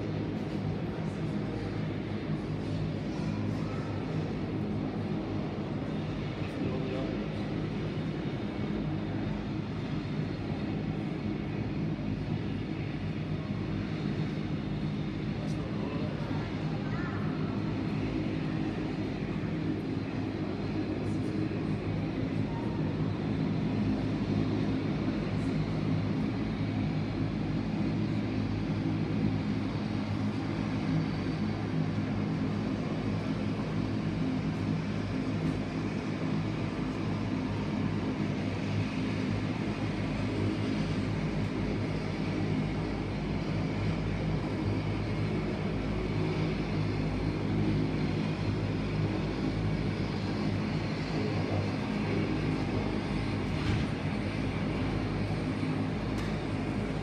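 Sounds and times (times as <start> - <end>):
turboprop engines humming: 0.0 - 57.0.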